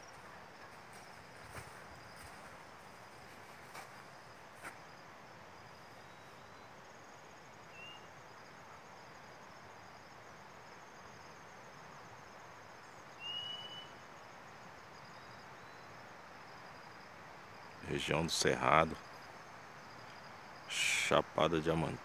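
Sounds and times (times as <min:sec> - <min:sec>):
faint steady hiss: 0:00.0 - 0:22.0
insects trilling: 0:00.0 - 0:22.0
bird whistling: 0:13.2 - 0:13.9.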